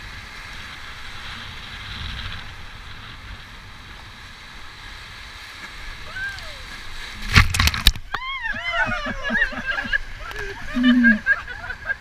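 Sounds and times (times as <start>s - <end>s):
wind rumbling on microphone: 0.0s - 12.0s
whitewater rapids rushing: 5.3s - 12.0s.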